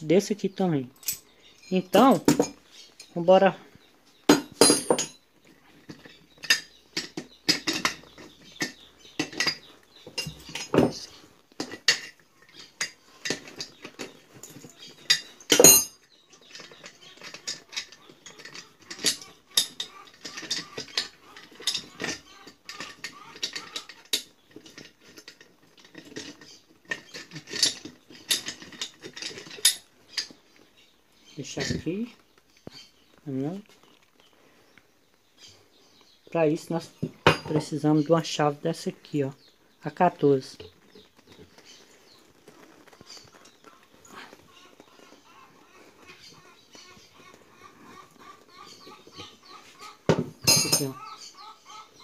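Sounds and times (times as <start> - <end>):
socket wrench clinking on metal: 1.0 - 2.6, 4.5 - 5.2, 14.6 - 16.0, 50.4 - 51.0.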